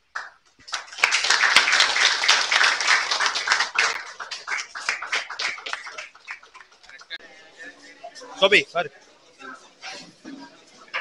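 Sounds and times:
crowd applauding: 0:00.2 - 0:07.2.

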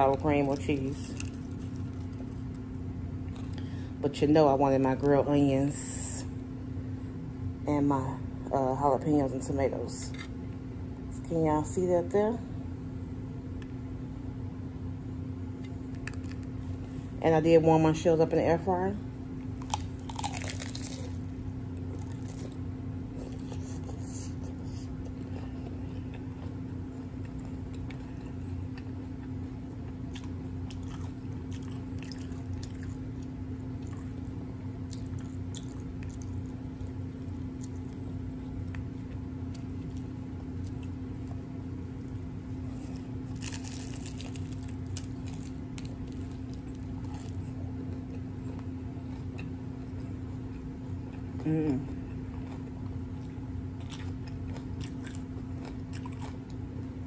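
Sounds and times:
steady low hum: 0:00.0 - 0:57.0
person chewing crunchy taco shell: 0:00.8 - 0:03.7, 0:15.6 - 0:17.1, 0:19.4 - 0:57.0.

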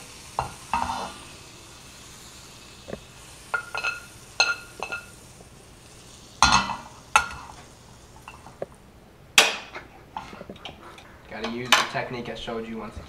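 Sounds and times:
knife scraping frying pan: 0:00.4 - 0:01.4, 0:02.9 - 0:05.2, 0:06.2 - 0:08.6.

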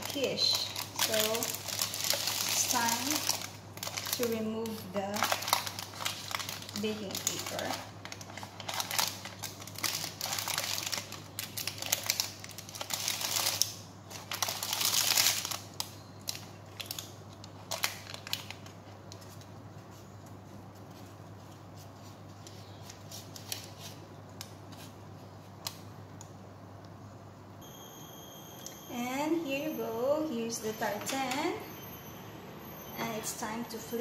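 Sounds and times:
baking parchment crinkling: 0:00.0 - 0:26.0.

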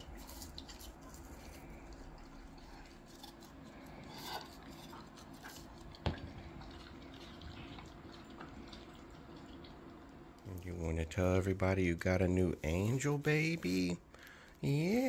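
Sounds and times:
dog licking and chewing: 0:00.0 - 0:10.2.

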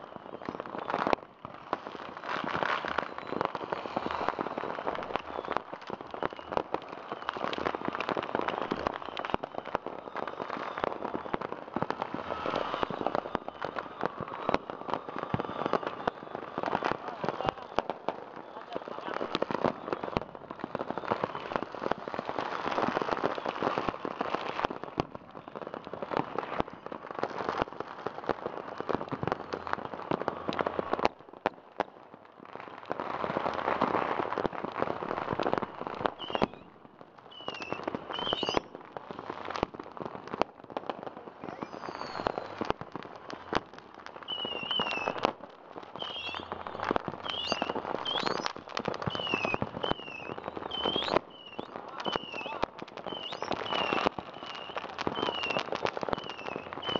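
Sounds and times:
fireworks crackling and banging: 0:00.0 - 0:56.9
high whistles rising and falling: 0:01.9 - 0:07.6, 0:08.4 - 0:17.4, 0:41.4 - 0:42.7, 0:44.2 - 0:45.2, 0:45.9 - 0:56.9.

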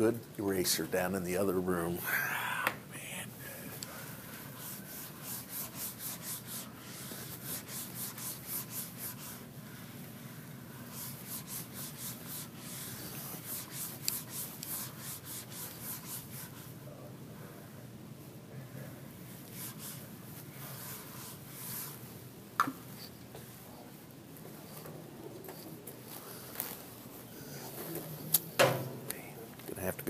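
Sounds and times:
eraser rubbing on whiteboard: 0:04.5 - 0:09.5, 0:10.8 - 0:16.7, 0:19.5 - 0:22.0.

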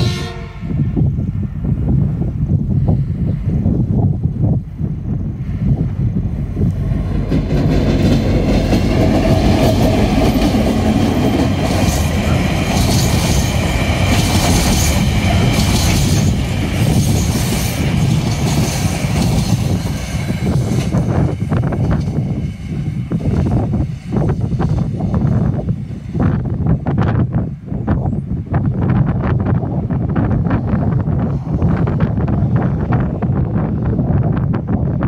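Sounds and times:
diesel locomotive passing: 0:00.0 - 0:35.0
wagon wheels rumbling on rails: 0:06.7 - 0:22.2.

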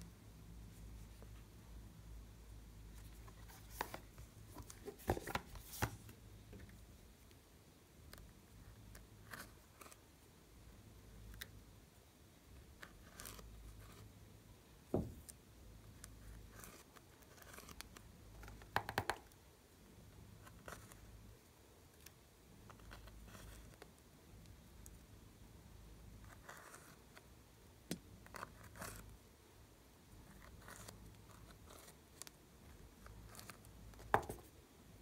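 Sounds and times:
dull knock: 0:14.9 - 0:15.2.

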